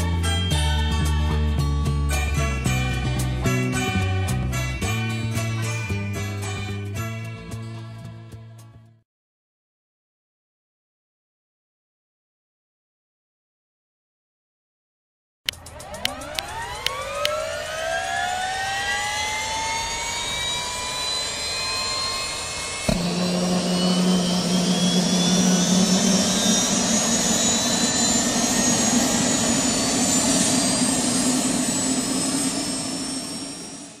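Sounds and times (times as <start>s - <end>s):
low hum: 15.5s - 34.0s
turbine engine whine: 15.5s - 34.0s.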